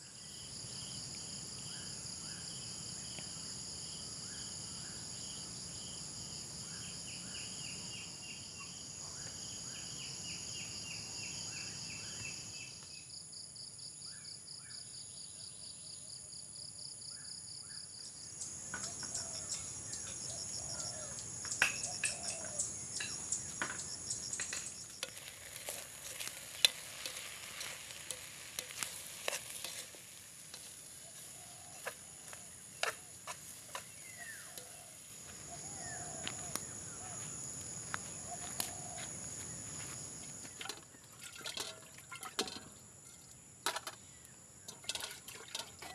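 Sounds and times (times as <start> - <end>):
crickets and insects trilling: 0.0 - 16.0, 17.0 - 45.9
wood fire crackling and popping: 23.0 - 35.1.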